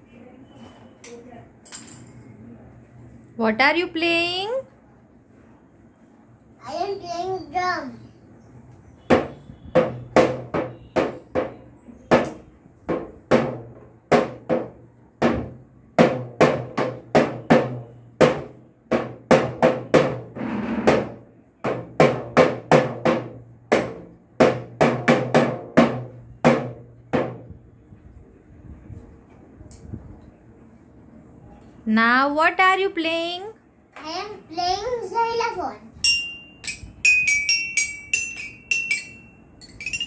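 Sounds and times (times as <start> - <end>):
toy drum beaten with mallets: 36.0 - 40.0.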